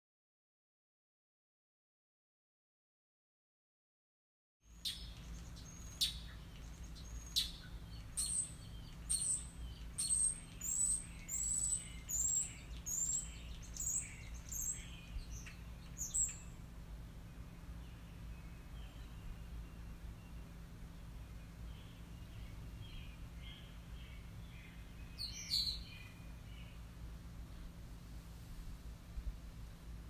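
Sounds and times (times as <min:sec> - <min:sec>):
bird chirping: 0:04.7 - 0:27.0
steady low hum: 0:04.7 - 0:30.0.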